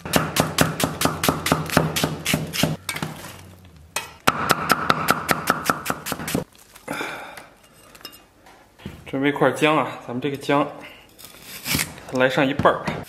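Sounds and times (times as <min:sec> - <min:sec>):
cleaver chopping on wooden block: 0:00.1 - 0:02.8.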